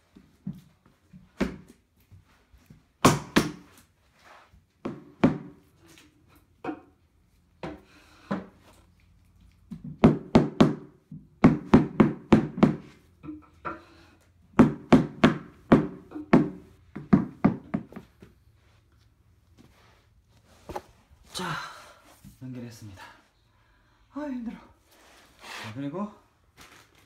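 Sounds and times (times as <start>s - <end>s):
knocking on wooden shelf panel: 14.5s - 18.2s.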